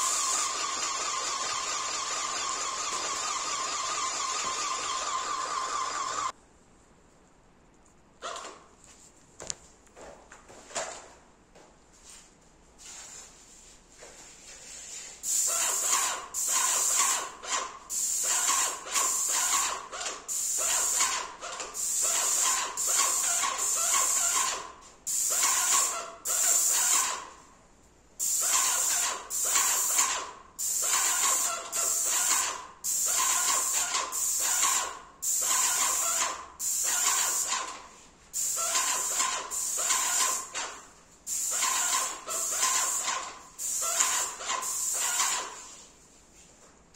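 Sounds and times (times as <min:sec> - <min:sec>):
paint spray gun hissing: 0:00.0 - 0:06.3, 0:15.2 - 0:17.3, 0:17.9 - 0:21.2, 0:21.8 - 0:27.3, 0:28.2 - 0:37.7, 0:38.3 - 0:45.8.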